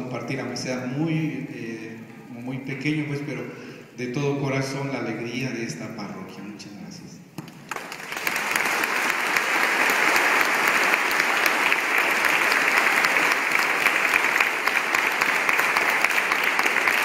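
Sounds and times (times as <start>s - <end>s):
crowd applauding: 7.5s - 17.0s.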